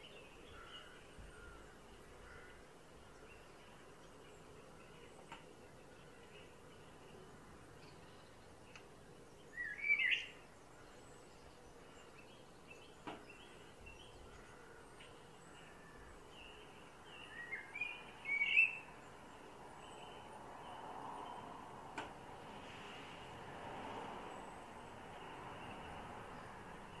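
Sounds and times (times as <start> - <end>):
blackbird singing: 0.0 - 20.8
faint birds chirping: 0.0 - 27.0.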